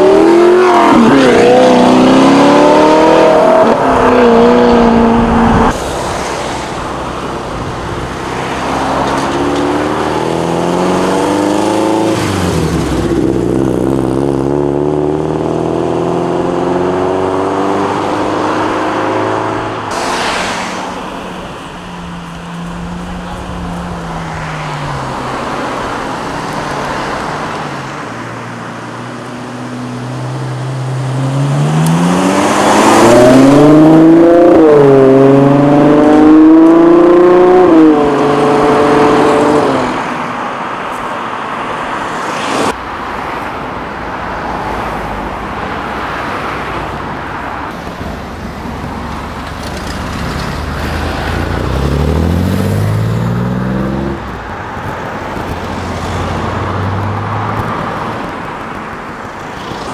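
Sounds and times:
car accelerating hard: 0.0s - 6.6s, 30.8s - 40.2s, 48.9s - 54.3s
performance car engines revving: 0.0s - 59.9s.

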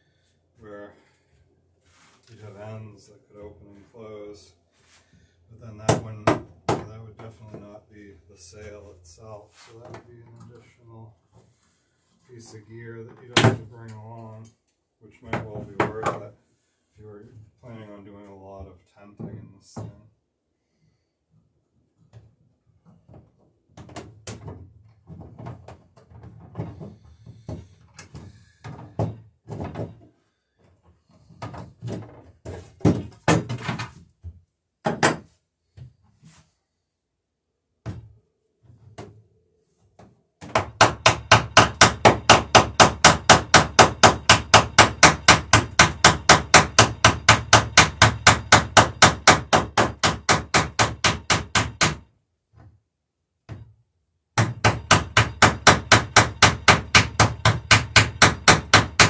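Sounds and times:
hammer riveting wooden planks: 31.3s - 33.9s.

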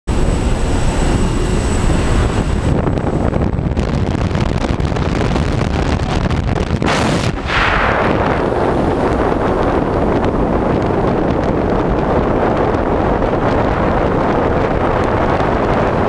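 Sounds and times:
plane engine rumble: 0.1s - 16.0s
rush of wind: 0.1s - 16.0s
sharp wind blast: 0.1s - 16.0s
wind buffeting microphone: 0.1s - 16.0s.

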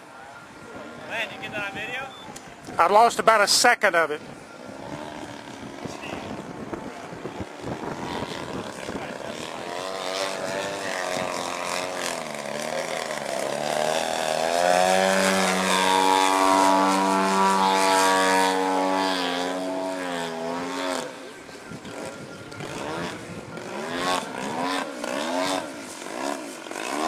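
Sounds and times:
propeller plane engine: 4.2s - 27.0s.

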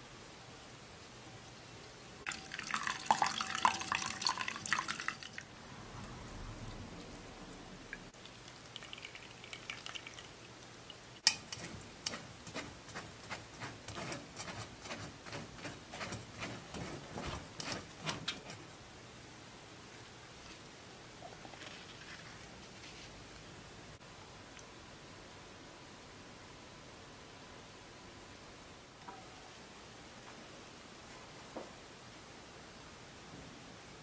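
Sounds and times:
liquid pouring through strainer: 2.3s - 5.5s, 6.1s - 11.6s.

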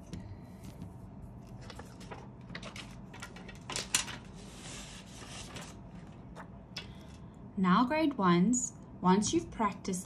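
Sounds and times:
paper rustling: 0.8s - 6.5s
paper sliding hiss: 4.2s - 5.8s.

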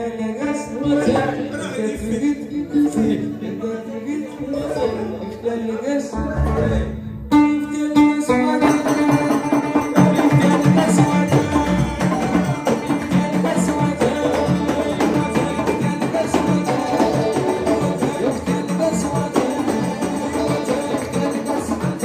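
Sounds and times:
banjo: 0.0s - 22.0s
electric guitar: 4.3s - 22.0s
frame drums and hand drums: 8.4s - 22.0s.

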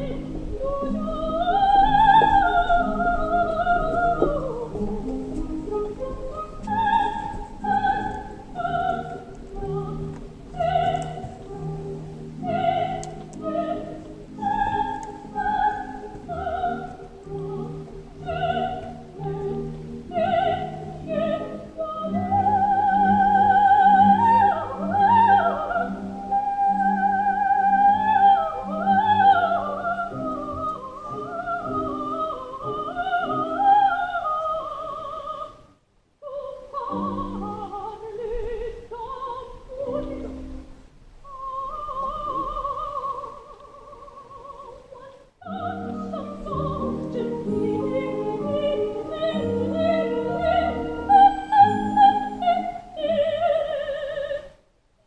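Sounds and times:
musical accompaniment: 0.0s - 34.4s, 45.5s - 53.8s
soprano singing opera: 0.0s - 54.6s.

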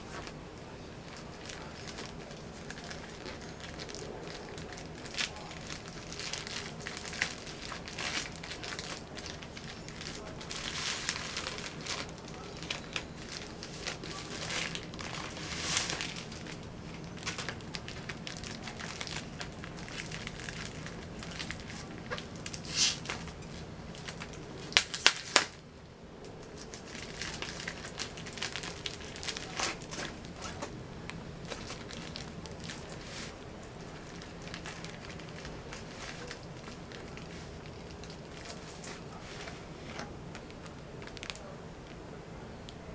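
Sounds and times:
plastic packaging crinkling: 0.0s - 25.6s, 26.2s - 42.1s
cloth bag rustling: 5.0s - 23.4s.

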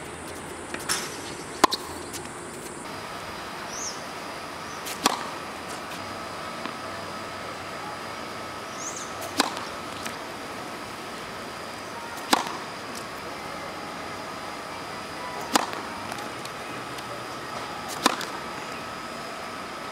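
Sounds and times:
tennis racket hitting ball: 0.2s - 2.8s, 4.7s - 7.2s, 8.6s - 13.4s, 15.2s - 19.1s
bird chirping: 8.7s - 9.2s.

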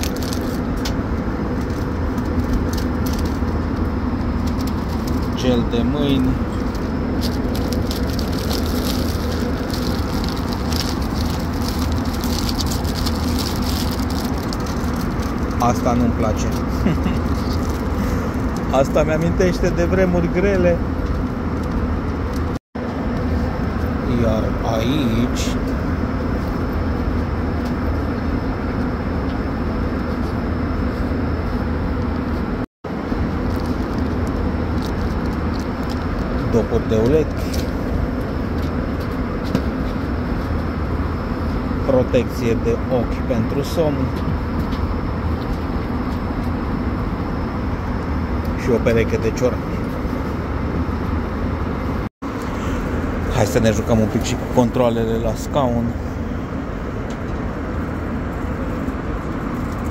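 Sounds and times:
plastic wrappers crinkling: 0.0s - 0.7s, 6.6s - 15.7s, 16.4s - 18.7s, 33.4s - 36.5s
airplane cabin rumble: 0.0s - 59.9s.

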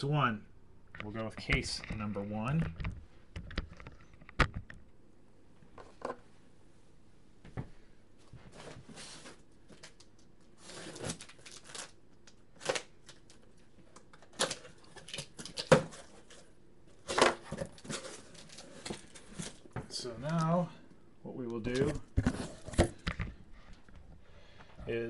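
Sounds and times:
cardboard boxes scraping and rustling: 8.5s - 9.4s, 10.6s - 11.3s.

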